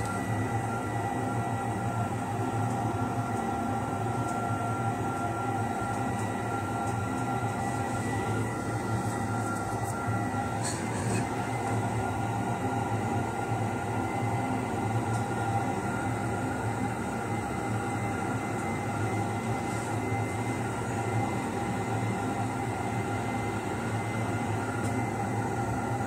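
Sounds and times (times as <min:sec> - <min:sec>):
machine hum: 0:05.0 - 0:13.2.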